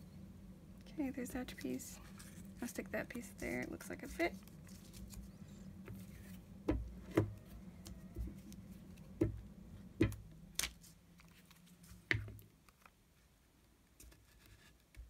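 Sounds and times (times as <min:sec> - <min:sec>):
paper rustling: 0:01.5 - 0:06.4, 0:10.6 - 0:13.0.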